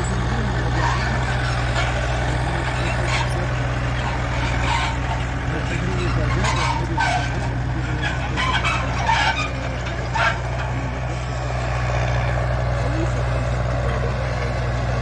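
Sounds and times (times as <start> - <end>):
knocks and rattles: 0.0 - 11.2
tractor engine running: 0.0 - 15.0.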